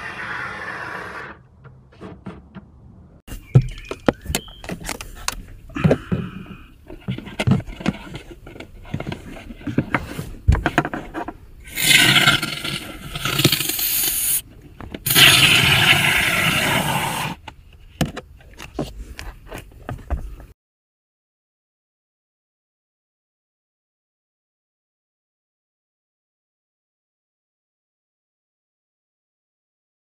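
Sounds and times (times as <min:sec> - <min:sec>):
aerosol spraying hiss: 0:11.8 - 0:14.4, 0:15.1 - 0:17.4.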